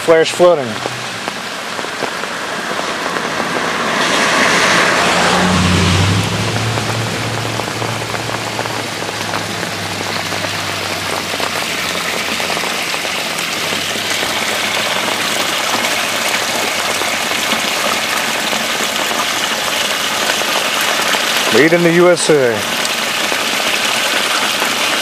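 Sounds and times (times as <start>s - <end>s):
water pouring through drain grate: 0.0s - 25.0s
low engine hum: 0.7s - 20.6s.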